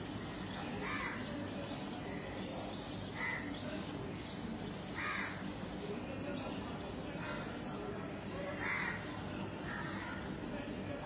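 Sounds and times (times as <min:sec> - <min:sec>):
steady background noise: 0:00.0 - 0:11.0
crows cawing: 0:00.8 - 0:01.3, 0:03.2 - 0:03.5, 0:05.0 - 0:05.4, 0:08.6 - 0:10.3.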